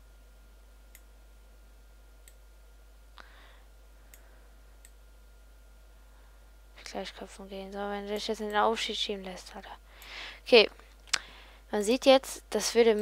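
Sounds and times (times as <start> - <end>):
faint electrical hum: 0.0 - 13.0.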